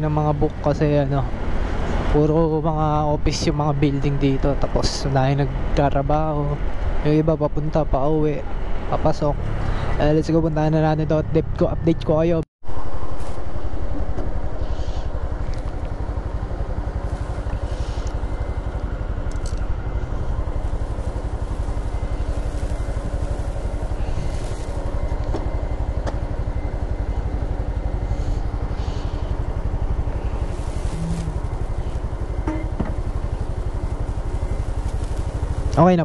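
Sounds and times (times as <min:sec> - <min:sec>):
motorcycle engine idling: 0:14.0 - 0:36.0.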